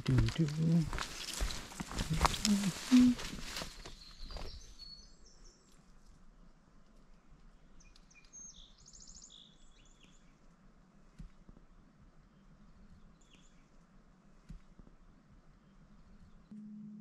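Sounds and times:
faint songbird calls: 0:01.1 - 0:05.8.

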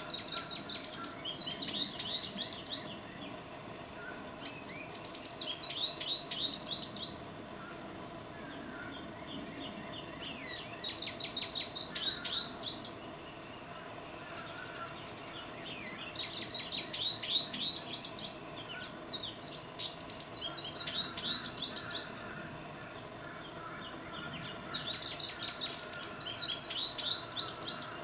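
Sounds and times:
goldfinch twittering song: 0:00.0 - 0:28.0.

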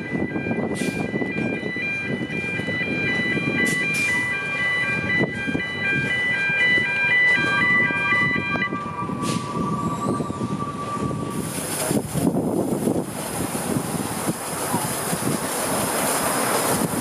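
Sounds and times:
electronic chime tones: 0:00.0 - 0:09.2
train rumbling on track: 0:00.0 - 0:17.0
wheels squealing on rails: 0:00.0 - 0:17.0.

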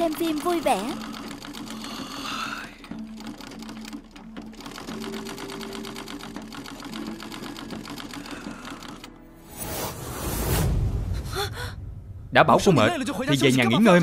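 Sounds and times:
sewing machine stitching: 0:00.0 - 0:09.1.

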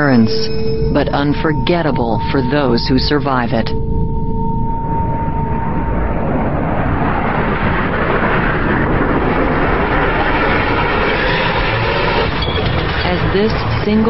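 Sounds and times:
jet engines roaring: 0:04.4 - 0:14.0.

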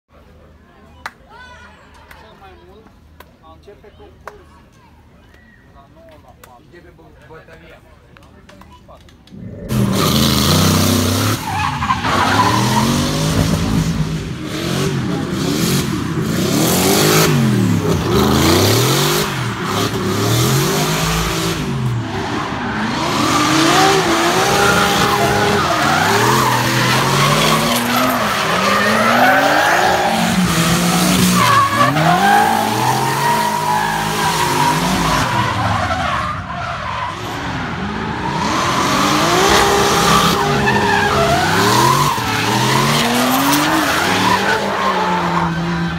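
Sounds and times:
car engine revving: 0:09.3 - 0:45.9
tyres squealing: 0:22.8 - 0:45.9.

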